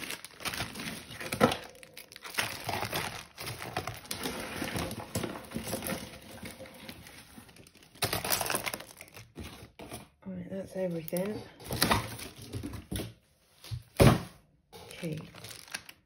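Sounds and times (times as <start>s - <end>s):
plastic bag crinkling: 0.0s - 9.8s, 14.9s - 16.0s
jewellery clattering and clinking: 7.7s - 9.1s.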